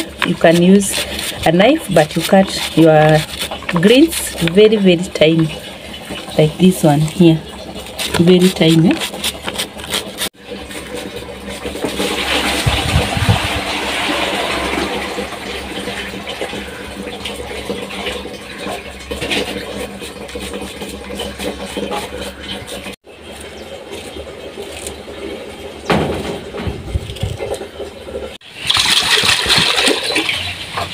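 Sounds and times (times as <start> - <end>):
knife cutting leafy greens: 0.0 - 10.3
rushing noise with low rumble: 12.3 - 16.8.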